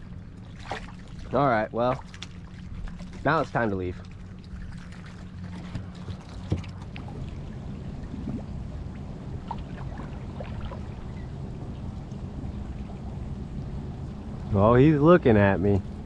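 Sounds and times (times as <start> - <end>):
low steady hum: 0.0 - 16.0
water splashing and dripping: 9.4 - 11.2.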